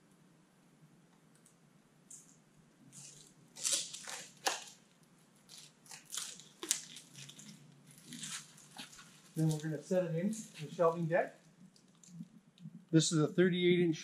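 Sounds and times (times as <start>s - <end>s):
plastic film crinkling: 2.9s - 12.4s.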